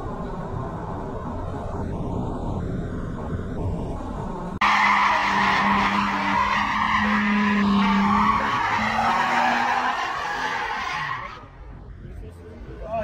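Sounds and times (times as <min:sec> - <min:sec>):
car engine: 0:00.0 - 0:13.0
low traffic rumble: 0:00.0 - 0:13.0
tyres squealing on asphalt: 0:04.6 - 0:11.6.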